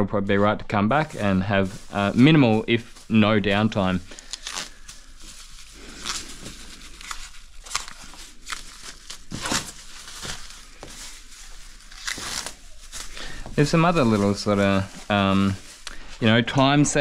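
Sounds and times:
plastic film crinkling: 0:00.9 - 0:17.0.

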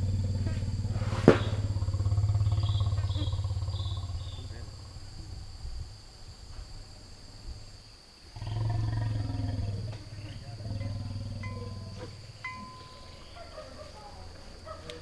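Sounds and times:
elephant rumbling call: 0:00.0 - 0:05.5, 0:08.4 - 0:14.8
insects chirring: 0:00.0 - 0:15.0
faint bell ringing: 0:10.8 - 0:13.5.

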